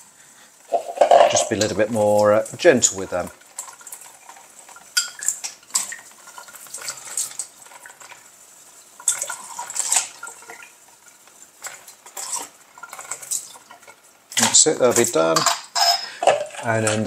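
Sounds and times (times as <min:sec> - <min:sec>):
running tap water: 0:00.0 - 0:17.0
glass parts clinking: 0:00.7 - 0:01.7, 0:15.4 - 0:17.0.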